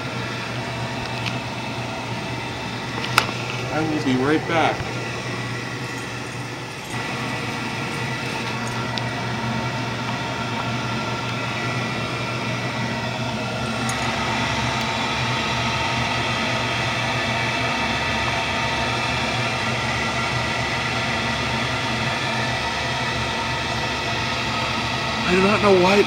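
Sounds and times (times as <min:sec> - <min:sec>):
furnace fan whirring: 0:00.0 - 0:26.0.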